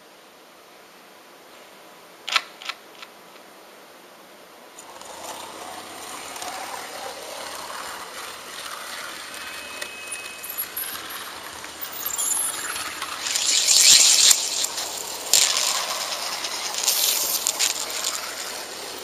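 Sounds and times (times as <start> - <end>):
model train motor whirring: 4.8 - 19.0
wheels rattling over rails: 4.8 - 19.0.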